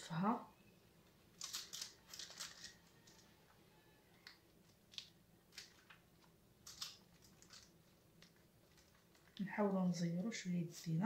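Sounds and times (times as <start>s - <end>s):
tortilla wrap rustling: 1.3s - 3.4s, 4.2s - 9.4s.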